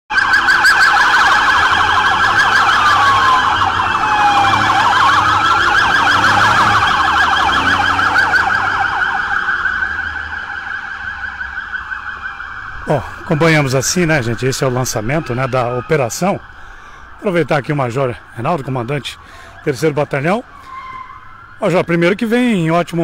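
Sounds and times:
police sirens yelping: 0:00.1 - 0:23.0
siren wail: 0:00.1 - 0:23.0.

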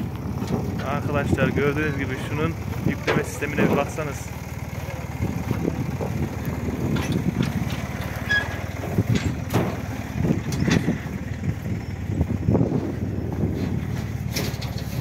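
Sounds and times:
tractor engine running: 0:00.0 - 0:15.0
knocks and thuds of bale loading: 0:05.2 - 0:11.1, 0:12.5 - 0:15.0.

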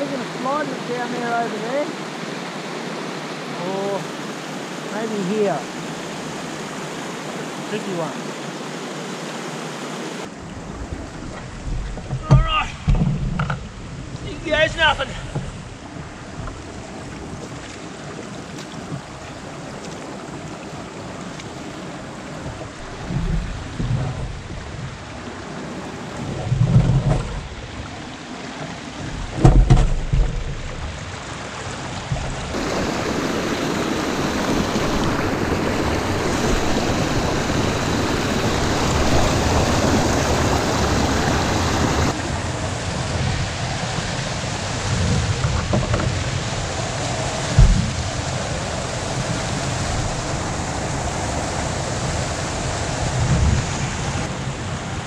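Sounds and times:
water rushing over rocks: 0:00.0 - 0:55.0
dull low thumps: 0:22.4 - 0:25.0, 0:47.5 - 0:48.2.

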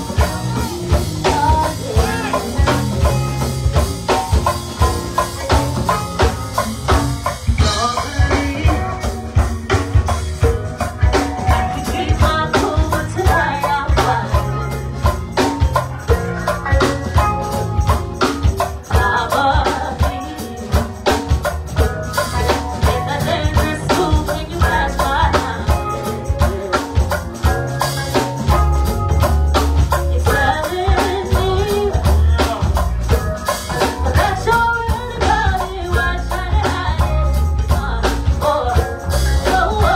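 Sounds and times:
person singing: 0:00.0 - 0:03.5, 0:07.6 - 0:09.6, 0:11.1 - 0:15.2, 0:18.9 - 0:21.2, 0:22.4 - 0:27.6, 0:29.9 - 0:39.9
drum kit and congas beat: 0:00.0 - 0:39.9.

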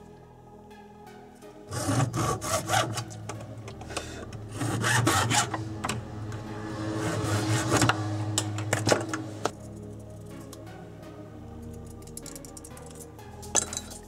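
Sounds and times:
hacksaw cutting plastic pipe: 0:01.7 - 0:03.2, 0:04.5 - 0:06.0, 0:07.0 - 0:09.0.

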